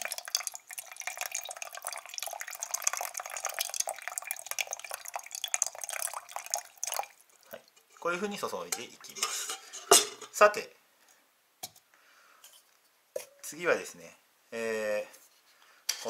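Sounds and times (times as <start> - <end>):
water pouring into metal mug: 0.0 - 9.6.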